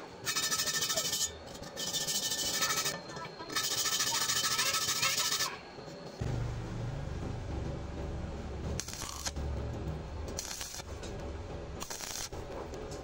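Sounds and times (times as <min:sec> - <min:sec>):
welding arc crackling: 0:08.8 - 0:09.4, 0:10.3 - 0:11.1, 0:11.8 - 0:12.4.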